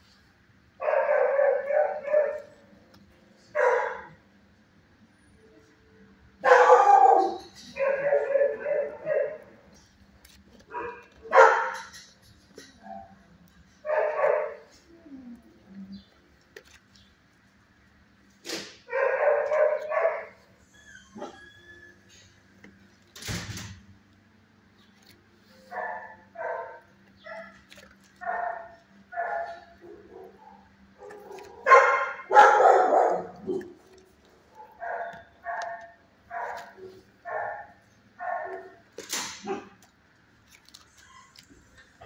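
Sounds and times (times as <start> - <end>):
dog barking: 0.8 - 2.5, 3.5 - 4.2, 6.4 - 9.6, 10.7 - 11.9, 13.8 - 14.7, 18.9 - 20.4, 25.7 - 33.8, 34.5 - 38.8, 39.4 - 39.9.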